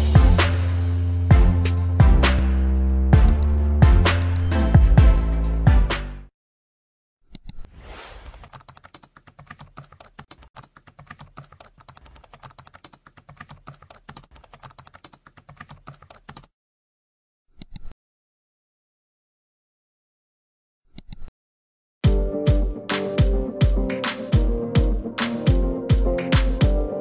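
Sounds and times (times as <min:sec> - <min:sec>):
computer keyboard typing: 0:08.3 - 0:16.5.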